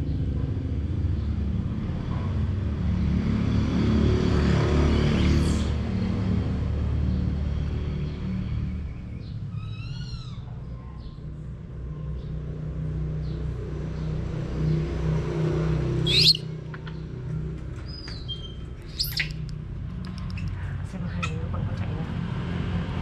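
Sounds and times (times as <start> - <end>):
baby monkey squeaking: 9.5 - 10.4, 16.1 - 16.5, 17.9 - 20.6
monkey high-pitched scream: 9.5 - 10.6, 16.1 - 16.4, 18.4 - 19.4.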